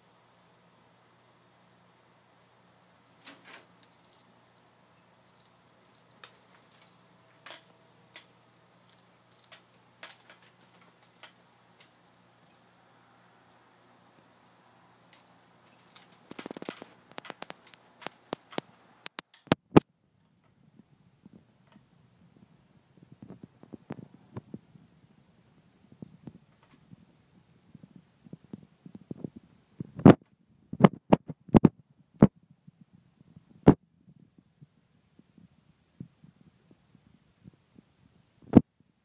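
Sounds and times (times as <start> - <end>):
cricket trill: 0.0 - 19.6
sharp clicks and ticks: 15.1 - 19.9.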